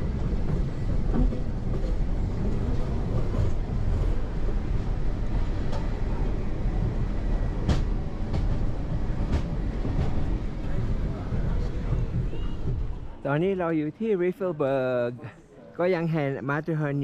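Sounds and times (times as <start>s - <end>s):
train low rumble: 0.0s - 15.1s.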